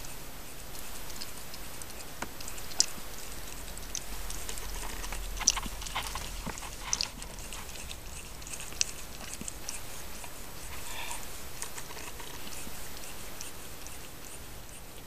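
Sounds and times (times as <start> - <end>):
kittens sucking and smacking: 0.0 - 15.0.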